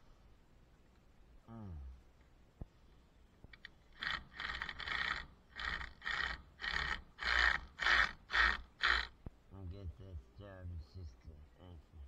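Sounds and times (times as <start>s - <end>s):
rhythmic scraping strokes: 3.9s - 9.2s.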